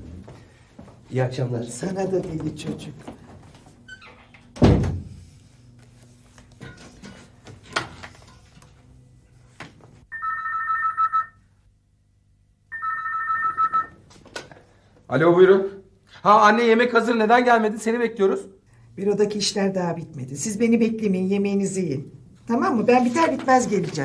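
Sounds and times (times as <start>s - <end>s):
door shutting: 3.9s - 5.2s
telephone ringing two-tone trill: 10.1s - 11.4s, 12.7s - 14.0s.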